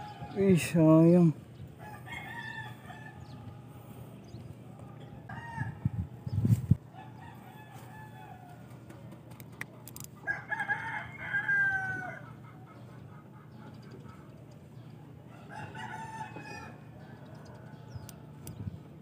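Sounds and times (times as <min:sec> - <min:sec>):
rooster crowing: 0:01.8 - 0:03.7, 0:05.3 - 0:06.0, 0:06.9 - 0:08.7, 0:10.2 - 0:12.3, 0:15.3 - 0:18.3.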